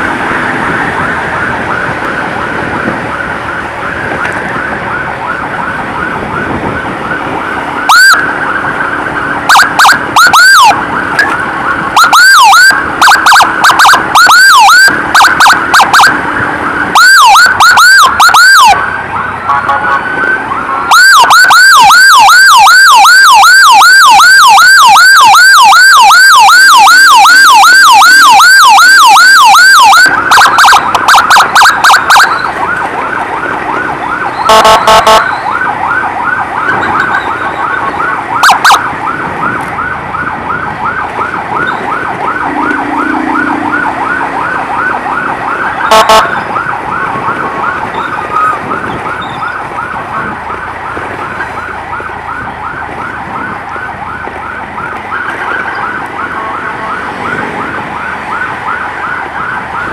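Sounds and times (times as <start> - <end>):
emergency siren yelping: 0.0 - 59.9
short loud horn blasts: 34.5 - 35.3.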